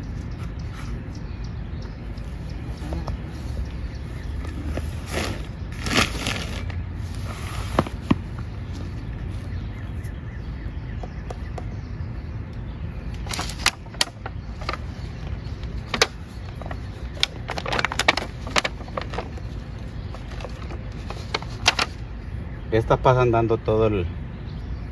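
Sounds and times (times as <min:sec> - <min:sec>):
plant pots rustling: 0:02.0 - 0:10.2, 0:13.1 - 0:23.0
sharp clicks and crackles: 0:12.5 - 0:22.0.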